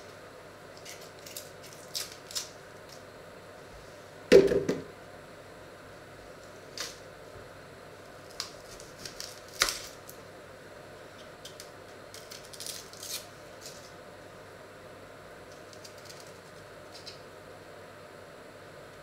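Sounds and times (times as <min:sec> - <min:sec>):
dry onion skins crackling: 0:00.7 - 0:03.0, 0:08.1 - 0:10.2, 0:11.2 - 0:14.0, 0:15.5 - 0:17.2.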